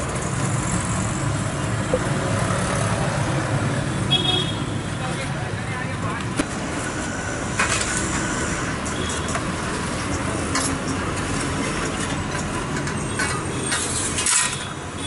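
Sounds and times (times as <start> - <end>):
street traffic rumble: 0.0 - 15.0
metal trays scraping and clanking: 10.5 - 14.8.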